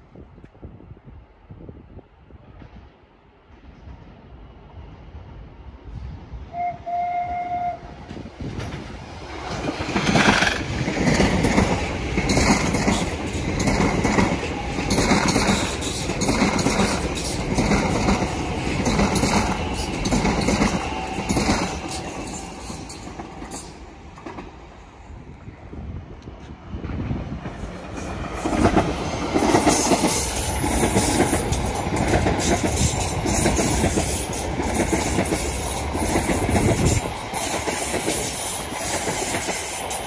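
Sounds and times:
train horn: 6.5 - 8.2
train wheels clattering over rail joints: 8.0 - 24.6, 27.4 - 40.0.

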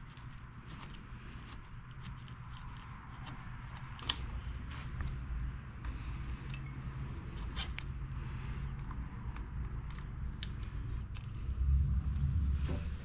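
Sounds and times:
metallic clicks of cables: 0.0 - 11.6
steady low hum: 0.0 - 13.0.

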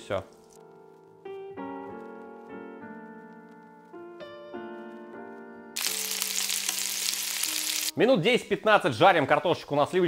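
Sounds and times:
piano background music: 0.0 - 10.0
potatoes sizzling in butter: 5.8 - 8.0.

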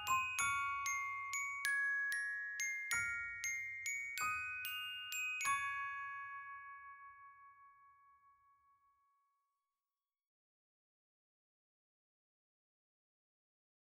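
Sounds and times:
glockenspiel-like bell notes: 0.0 - 9.6.

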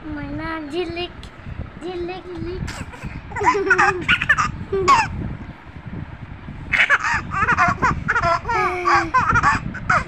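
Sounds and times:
baby laughing: 2.7 - 5.1, 6.7 - 10.0.

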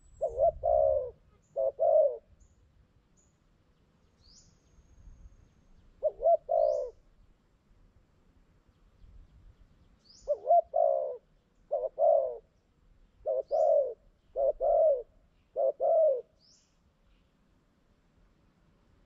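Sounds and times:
dove cooing: 0.0 - 2.3, 6.0 - 7.0, 10.2 - 12.5, 13.2 - 16.5
small bird chirping: 0.0 - 7.0, 8.7 - 12.3, 13.1 - 17.4.

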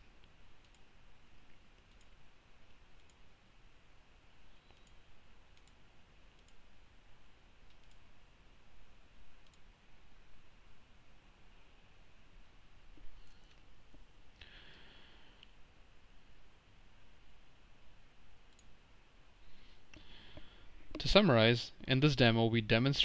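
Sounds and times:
low steady hiss: 0.0 - 23.0
computer mouse clicks: 0.2 - 0.9, 1.5 - 2.2, 2.8 - 3.2, 4.6 - 6.7, 7.6 - 8.1, 9.4 - 9.7, 18.5 - 18.7.

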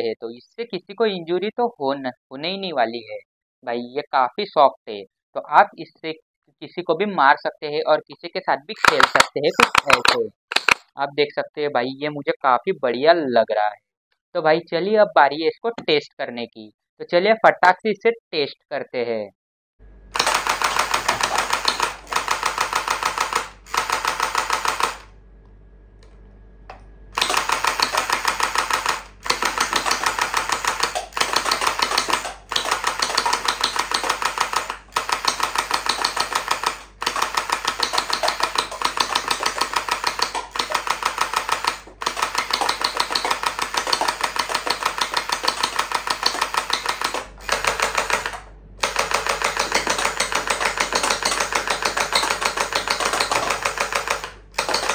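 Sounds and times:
toy blaster firing full-auto: 8.8 - 10.8, 20.1 - 25.1, 27.2 - 54.9.

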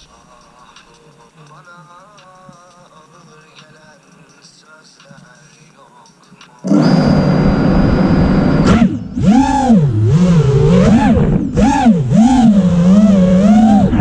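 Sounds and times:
drone motors whining: 6.6 - 14.0.

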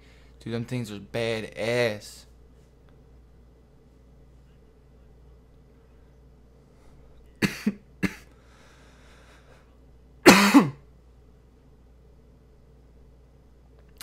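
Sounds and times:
person coughing: 7.4 - 8.3, 10.2 - 10.9.

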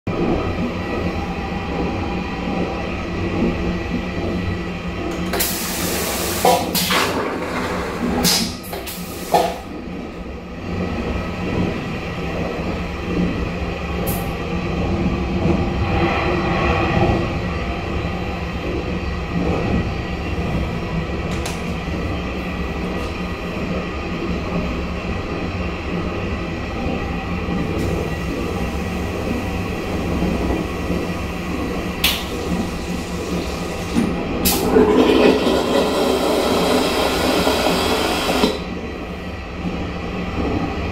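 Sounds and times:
rumble of moving train: 0.1 - 40.9
vacuum toilet flushing: 5.2 - 9.6, 32.4 - 38.6.

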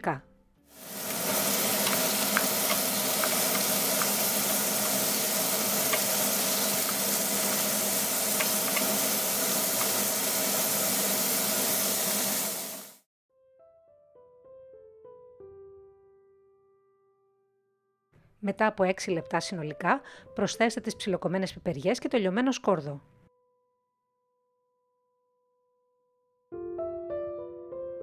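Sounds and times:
meat sizzling in a frying pan: 0.7 - 13.0
soft piano music: 13.3 - 17.7, 26.5 - 28.0.

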